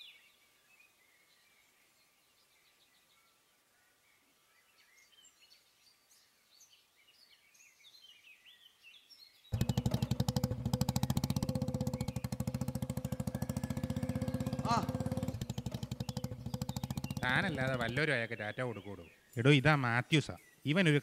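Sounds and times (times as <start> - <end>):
birds chirping: 6.7 - 21.0
motorcycle engine putter: 9.5 - 18.0.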